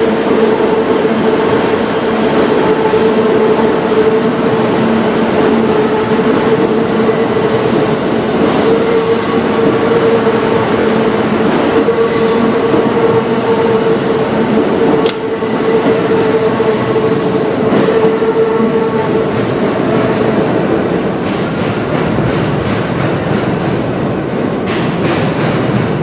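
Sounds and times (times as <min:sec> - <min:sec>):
train wheels rumbling: 0:00.0 - 0:26.0.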